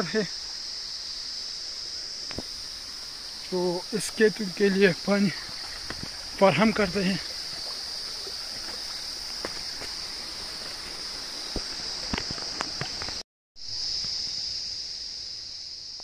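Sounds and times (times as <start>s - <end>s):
insects chirring: 0.0s - 16.0s
footsteps through grass: 5.3s - 13.2s.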